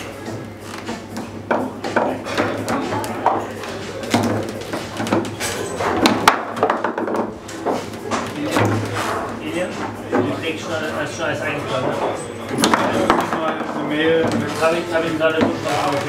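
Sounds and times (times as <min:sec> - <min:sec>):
ball clacking off table football: 0:00.8 - 0:09.2, 0:12.0 - 0:14.5.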